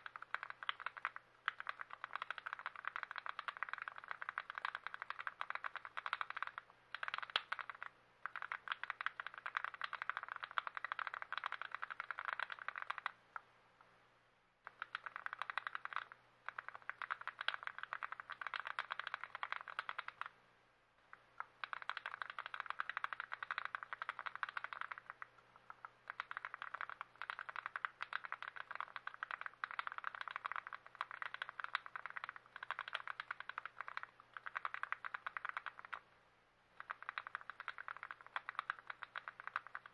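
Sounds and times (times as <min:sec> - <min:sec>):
mechanical keyboard typing: 0:00.0 - 0:13.2, 0:14.6 - 0:20.3, 0:21.4 - 0:36.0, 0:36.8 - 0:39.9.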